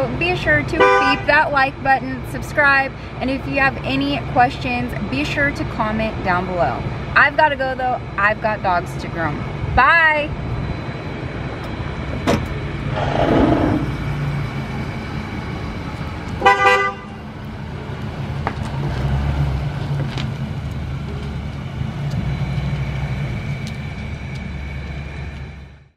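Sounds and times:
van engine pulling away: 0:10.4 - 0:25.9
horn toot: 0:16.4 - 0:17.2.

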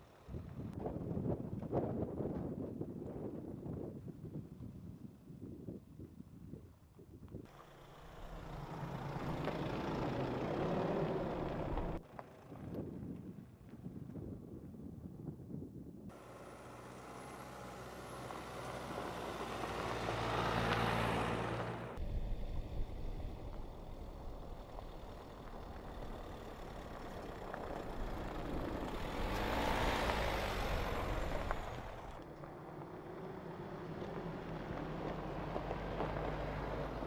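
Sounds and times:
pickup engine running: 0:07.5 - 0:12.0, 0:16.2 - 0:32.6
tyres crunching on gravel: 0:23.4 - 0:32.6.

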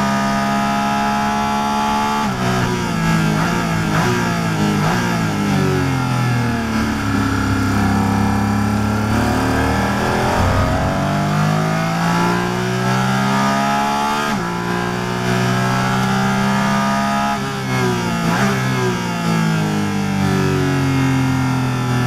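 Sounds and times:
car engine revving: 0:00.0 - 0:22.0
gear shift pitch drop: 0:03.8 - 0:17.6.

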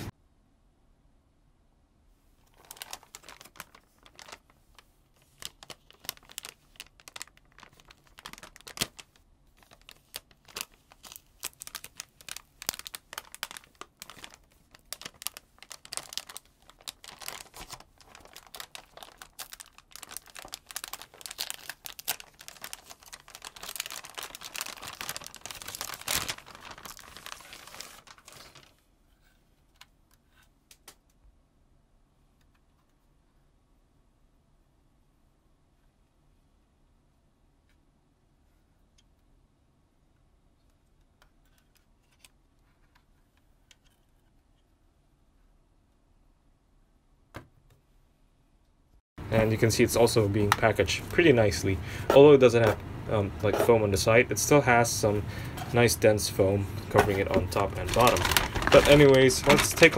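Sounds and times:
plastic bag crinkling: 0:02.4 - 0:28.8, 0:55.4 - 0:59.9.

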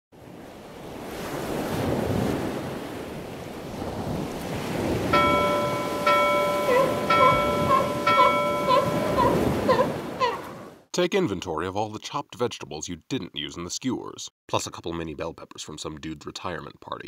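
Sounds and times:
bell-like chime: 0:05.2 - 0:09.6.

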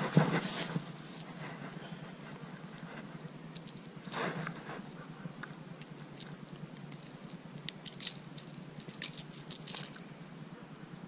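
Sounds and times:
rustle: 0:00.0 - 0:11.0.

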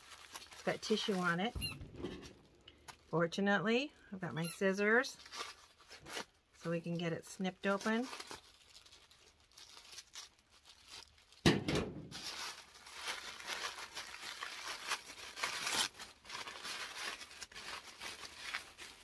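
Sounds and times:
tissue paper crinkling: 0:00.0 - 0:03.2, 0:04.6 - 0:11.4, 0:12.0 - 0:19.0
sharp thump: 0:11.4 - 0:12.1.

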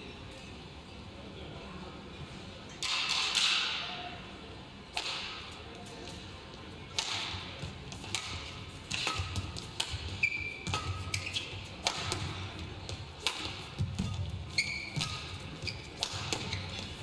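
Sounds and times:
badminton racket hitting shuttlecock: 0:04.9 - 0:05.4, 0:06.9 - 0:17.0.

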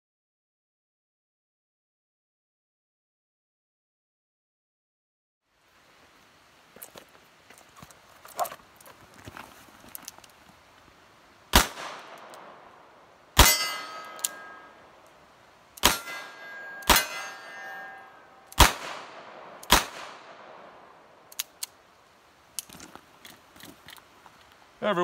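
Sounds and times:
metallic ring of steel target: 0:13.4 - 0:15.0, 0:15.8 - 0:18.8.

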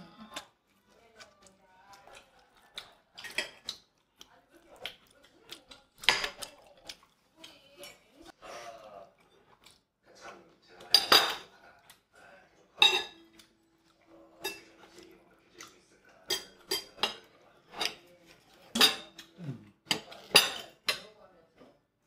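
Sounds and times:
cutlery scraping ceramic plate: 0:16.3 - 0:21.0.

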